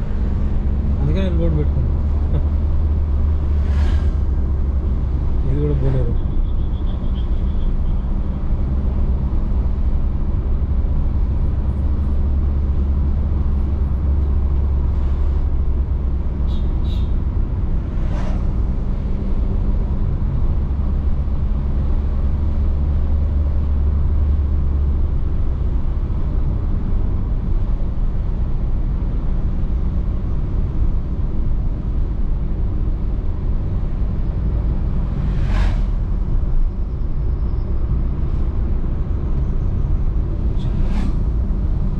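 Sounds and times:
car engine and tyres rumbling: 0.0s - 41.9s
short whooshes: 3.5s - 4.4s, 17.9s - 18.6s, 35.1s - 36.2s, 40.5s - 41.4s.

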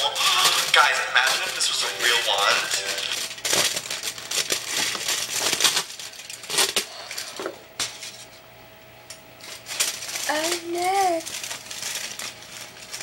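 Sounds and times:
foil crinkling: 0.0s - 7.3s, 9.4s - 13.0s.

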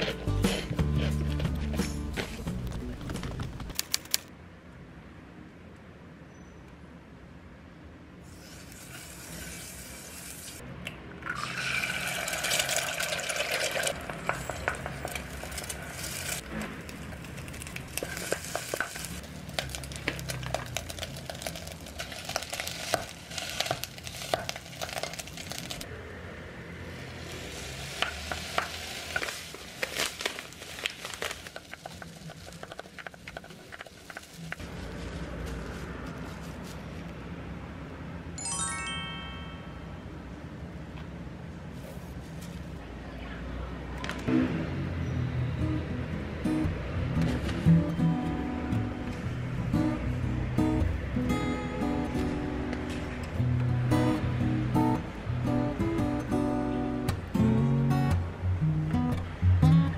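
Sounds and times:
utensil scraping a pot: 0.0s - 1.8s
food sizzling in a pot: 8.3s - 10.6s, 11.4s - 16.5s, 17.2s - 25.9s, 27.0s - 34.6s.

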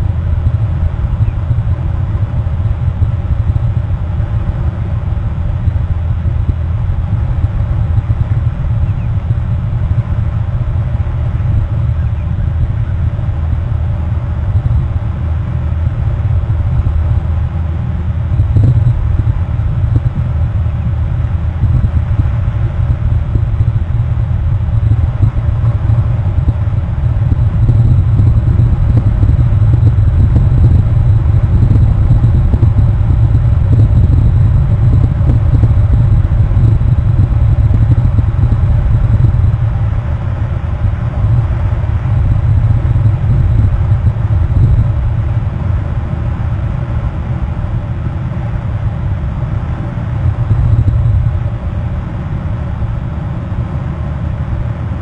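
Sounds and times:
steady low rumble: 0.0s - 55.0s.

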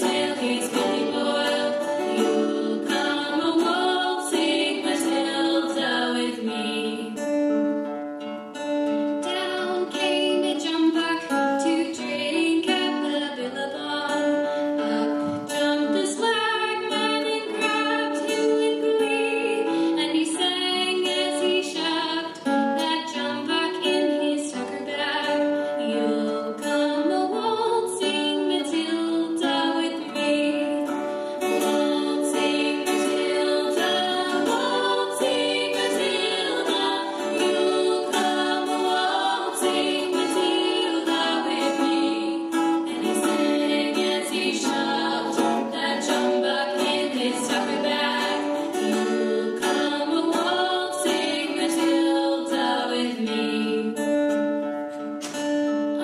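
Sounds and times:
girls singing: 0.0s - 7.3s, 9.2s - 54.6s
strummed acoustic guitar: 0.0s - 56.0s.

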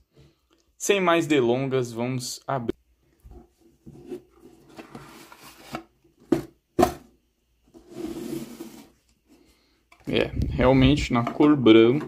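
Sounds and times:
paperboard box scraping and rubbing: 7.8s - 9.0s.

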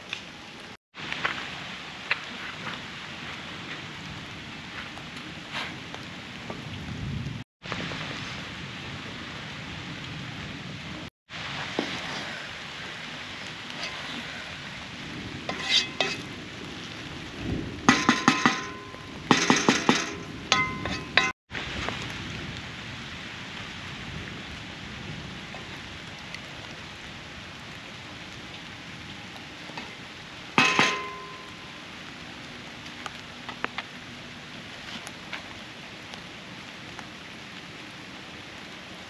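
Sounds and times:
steady hiss: 7.6s - 39.0s
metal utensil scraping pot: 15.5s - 16.3s, 19.4s - 21.3s
pot ringing: 17.9s - 21.3s, 30.6s - 31.8s.

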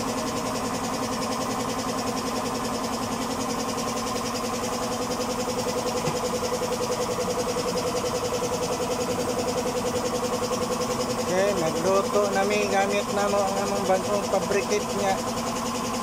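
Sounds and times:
oil burner stove pulsing hum: 0.0s - 16.0s.

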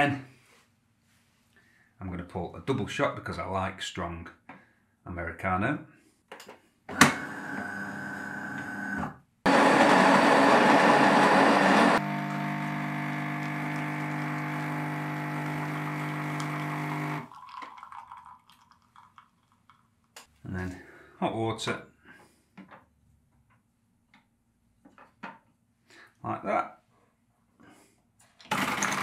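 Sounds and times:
pump buzzing: 6.9s - 17.3s
grinder grinding coffee beans: 7.0s - 18.0s, 28.5s - 29.0s.

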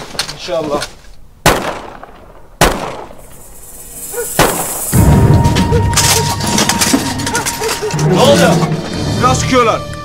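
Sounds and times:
echoing gunshots: 1.4s - 3.6s, 4.2s - 6.3s.

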